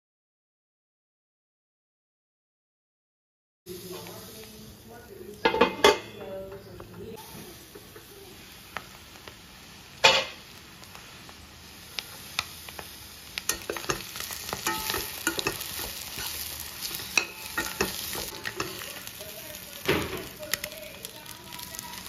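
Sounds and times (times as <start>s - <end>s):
oil sizzling in pan: 3.7s - 22.0s
spatula scraping pan: 13.4s - 19.3s.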